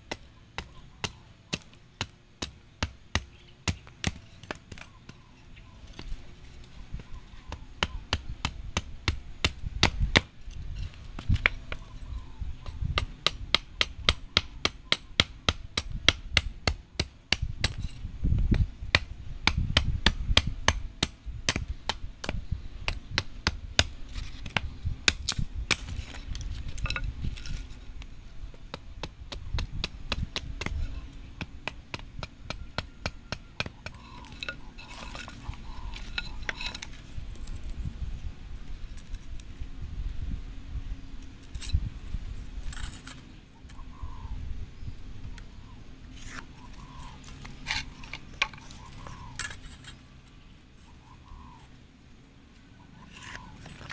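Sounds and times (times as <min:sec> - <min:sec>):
hatchet chopping wood: 0:00.1 - 0:04.9, 0:07.5 - 0:10.3, 0:12.9 - 0:17.8, 0:18.5 - 0:26.1, 0:28.7 - 0:30.8, 0:31.4 - 0:35.3.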